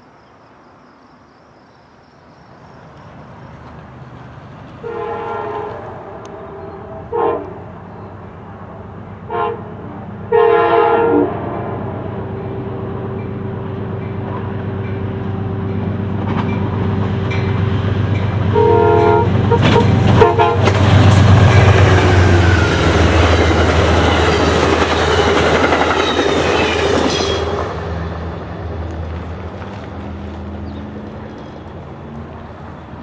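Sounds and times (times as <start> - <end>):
locomotive engine and wheel noise: 2.5 - 33.0
train horn blasts: 4.8 - 7.7, 9.3 - 13.2, 18.5 - 27.8.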